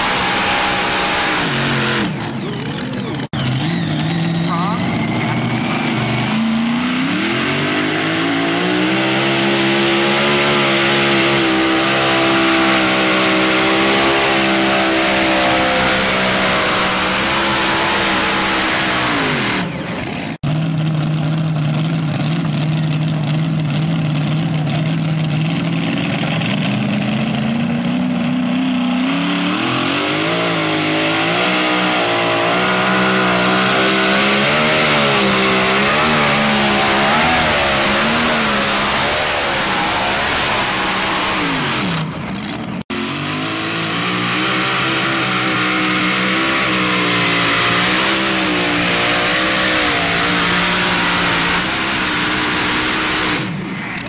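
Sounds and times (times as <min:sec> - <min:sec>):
tractor engine revving: 0:00.0 - 0:54.0.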